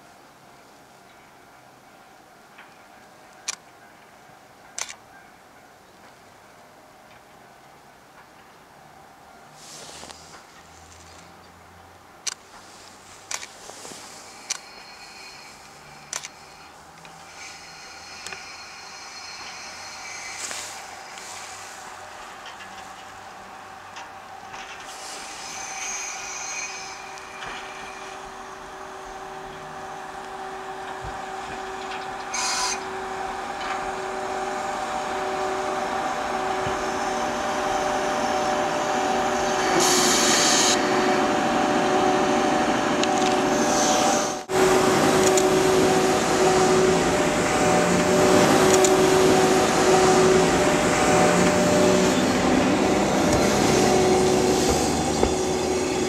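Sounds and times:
train rolling into station: 0.0s - 56.0s
wheels and brakes grinding: 12.5s - 56.0s
high squealing tones: 14.2s - 21.5s, 31.2s - 40.9s
brief hisses: 24.8s - 28.2s.

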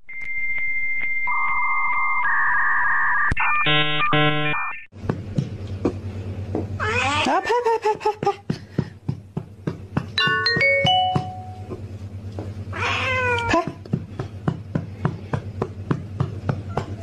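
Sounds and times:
music with ticking beat: 9.4s - 11.6s
cat meowing: 12.7s - 13.7s.

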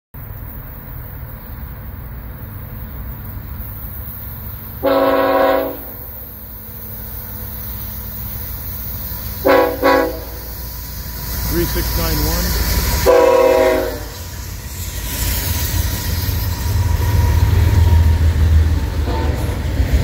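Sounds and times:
train rumbling: 0.2s - 20.0s
locomotive air horn blast: 4.8s - 6.1s, 9.4s - 10.5s, 13.0s - 14.2s, 19.0s - 19.5s.

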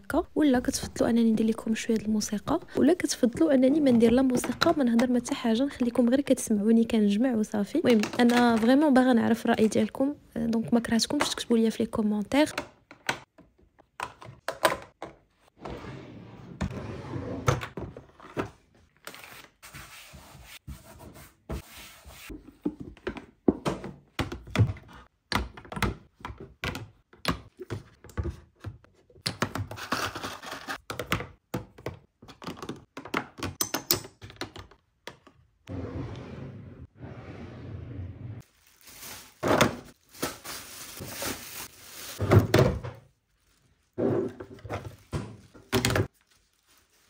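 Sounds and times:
plastic items clicking and knocking: 7.8s - 8.8s, 30.8s - 35.6s
drawer sliding shut: 15.6s - 17.8s, 35.7s - 38.4s.

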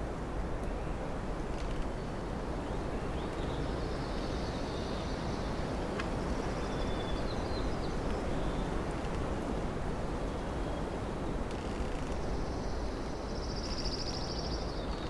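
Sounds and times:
faint high bird song: 0.6s - 9.3s, 12.0s - 15.0s.

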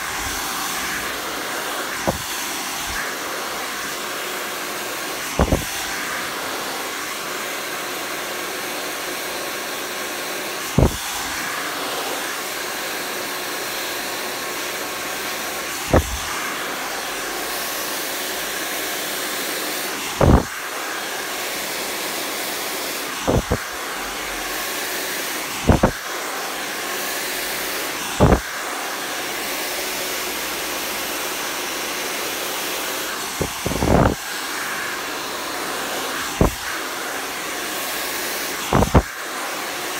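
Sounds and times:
hair dryer blowing: 0.0s - 39.9s
dull thump: 5.4s - 5.7s, 15.9s - 16.3s.

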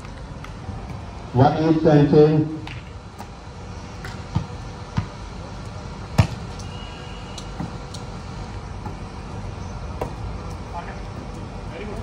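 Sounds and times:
steady low background noise: 0.0s - 12.0s
volleyball thuds: 4.0s - 5.2s, 6.1s - 6.5s.

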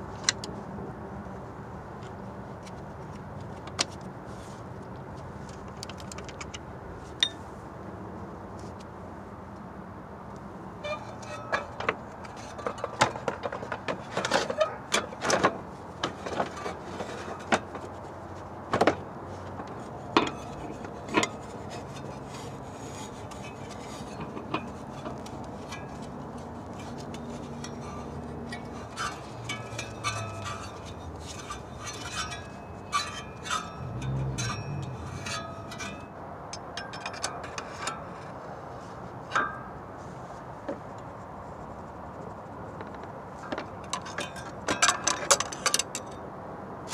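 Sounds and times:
tools and parts clicking: 5.5s - 7.4s, 19.6s - 38.4s, 42.9s - 46.2s.

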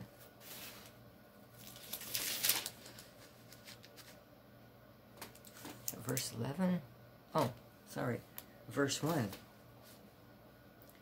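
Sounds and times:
paper pages rustling: 1.6s - 4.2s.

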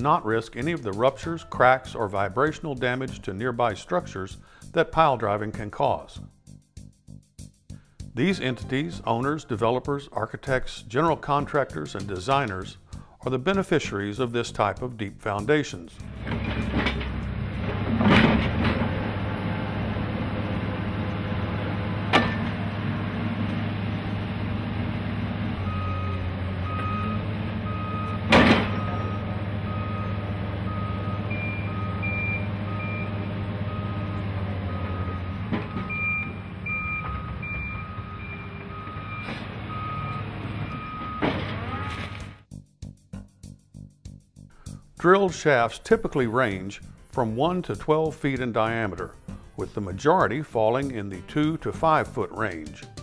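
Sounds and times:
diesel engine running: 16.0s - 42.5s
metal clanks: 16.1s - 19.0s, 22.1s - 22.6s, 28.1s - 29.0s
reversing alarm beeping: 25.6s - 42.1s.

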